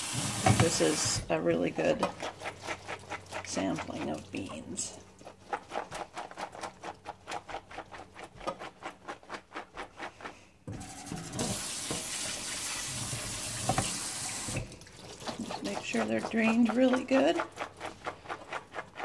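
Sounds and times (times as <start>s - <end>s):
faucet running water: 0.0s - 5.0s, 10.7s - 19.0s.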